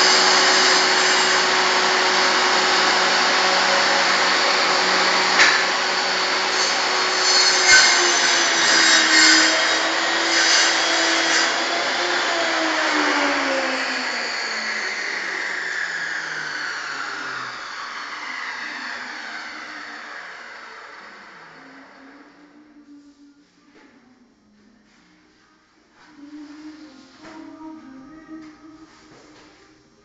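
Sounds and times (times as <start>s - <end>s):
table saw motor whine: 0.0s - 22.7s.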